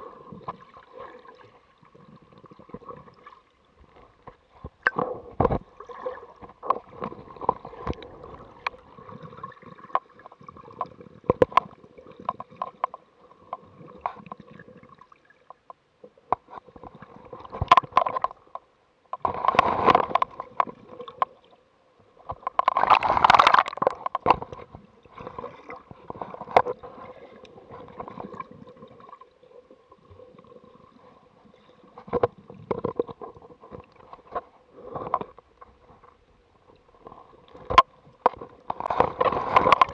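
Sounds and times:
water sloshing underwater: 0.0 - 39.9
sharp underwater clicks: 17.4 - 21.4, 22.2 - 24.7.

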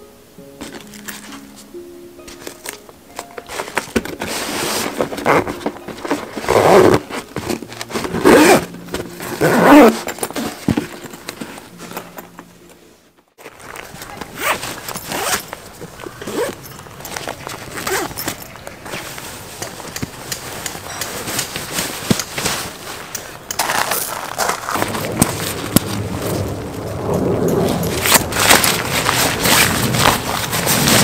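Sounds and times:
bag rustling and handling: 0.6 - 31.0
zipper on canvas bag: 4.2 - 11.6, 14.2 - 16.7, 17.7 - 18.4, 27.6 - 31.0.

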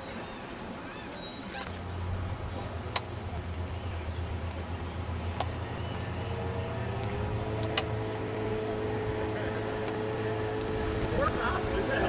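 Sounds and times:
motorboat engine running: 0.2 - 12.0
sharp clicks: 2.9 - 6.0, 7.0 - 8.5.

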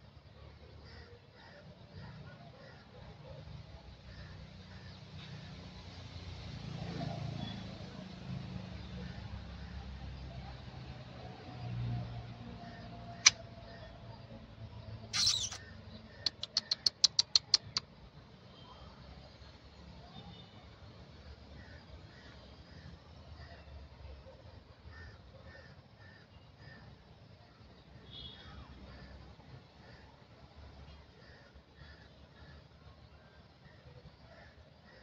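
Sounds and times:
faint distant calls: 15.0 - 17.8.

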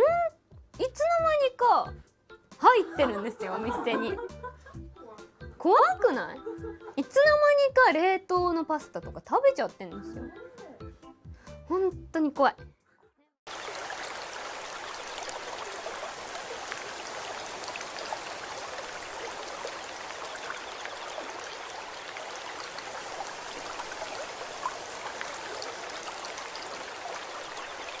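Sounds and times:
stream running water: 13.5 - 28.0
water drips and splashes: 13.5 - 28.0.

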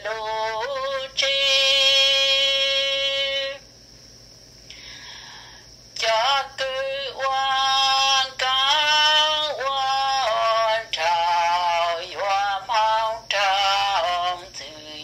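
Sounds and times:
person singing long sliding notes: 6.0 - 15.0.

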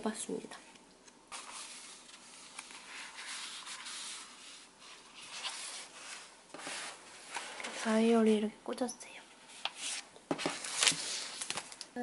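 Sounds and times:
paper and plastic rustling: 1.3 - 8.4, 9.6 - 11.9.

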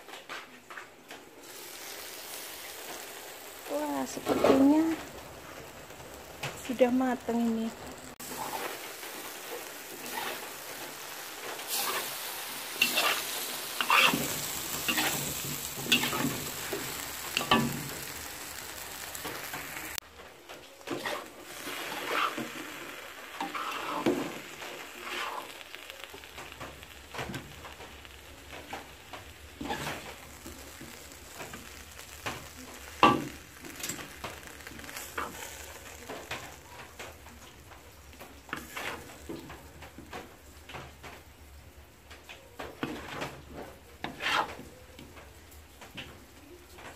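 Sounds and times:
food sizzling in a wok: 1.2 - 46.9
metal spatula scraping a wok: 8.2 - 18.2, 20.9 - 25.6, 29.6 - 30.8, 38.5 - 39.2, 44.0 - 44.6.

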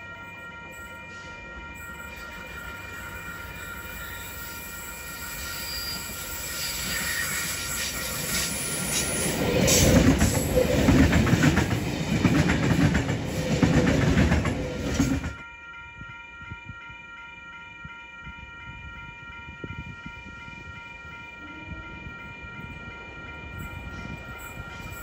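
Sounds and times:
train wheels clattering over rails: 6.8 - 15.4.

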